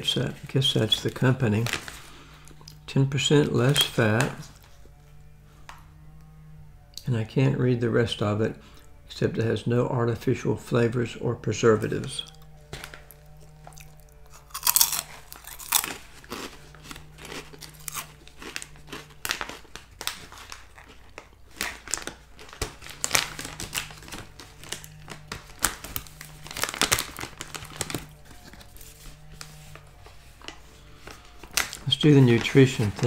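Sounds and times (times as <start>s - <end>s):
plastic snack bag crinkling: 0.1s - 2.9s, 3.5s - 4.8s, 12.3s - 33.0s
crunchy chewing: 12.2s - 33.0s.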